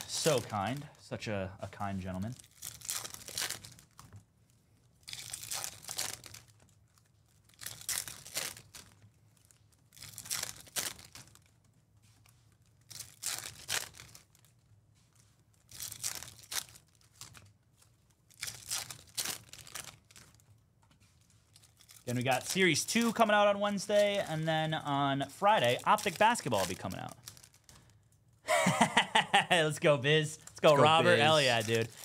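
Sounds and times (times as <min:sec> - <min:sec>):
foil wrappers ripping: 0:00.0 - 0:00.9, 0:02.1 - 0:04.1, 0:05.0 - 0:11.6, 0:12.8 - 0:14.6, 0:15.6 - 0:17.6, 0:18.2 - 0:20.5, 0:21.2 - 0:27.9, 0:30.6 - 0:32.0.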